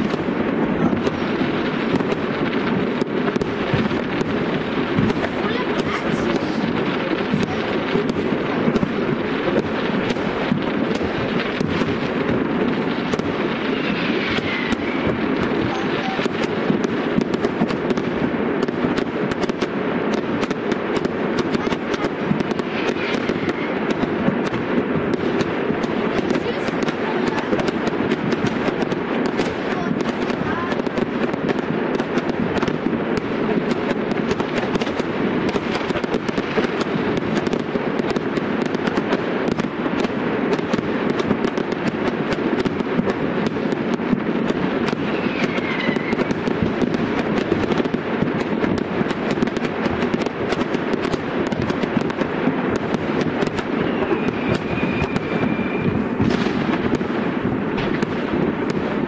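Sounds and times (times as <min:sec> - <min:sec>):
fireworks crackling: 0:00.0 - 0:59.0
firework whistle: 0:10.9 - 0:17.6, 0:21.4 - 0:30.9, 0:44.7 - 0:47.0, 0:53.2 - 0:58.8.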